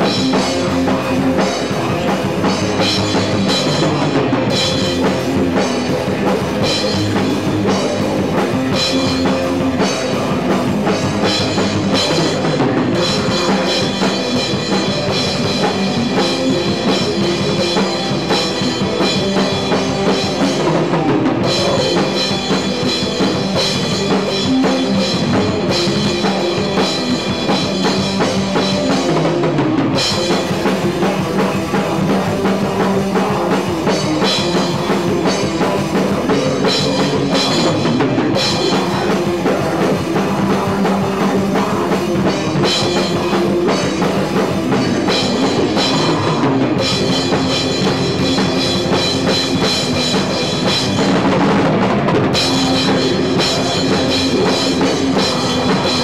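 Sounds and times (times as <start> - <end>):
cymbals and bass drum: 0.0 - 56.0
live metal band playing: 0.0 - 56.0.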